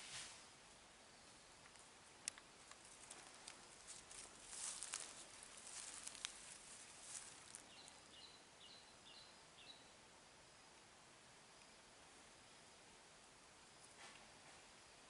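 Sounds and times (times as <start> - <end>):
small clicks: 1.6 - 3.6
dry leaves and twigs crackling: 1.6 - 8.2.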